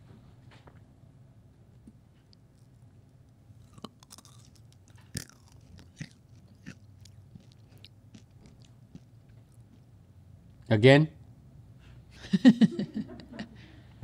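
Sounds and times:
candies being chewed: 2.2s - 9.9s.

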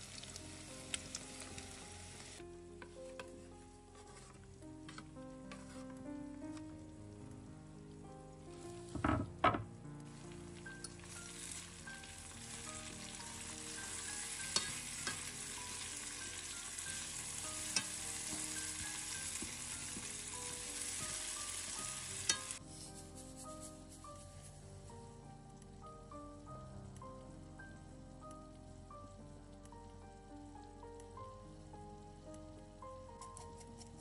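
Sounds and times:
food sizzling in a skillet: 0.0s - 2.4s, 10.0s - 24.7s
soft background music: 0.0s - 34.0s
tongs clicking: 14.4s - 15.3s, 22.3s - 22.6s, 33.1s - 34.0s.

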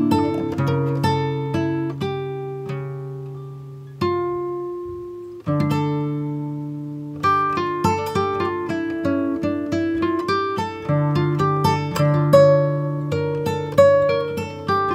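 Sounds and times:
plucked guitar music: 0.0s - 14.9s.

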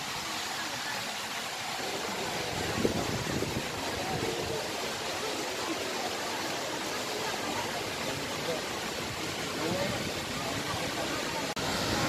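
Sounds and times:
flowing water rushing: 0.0s - 12.0s.

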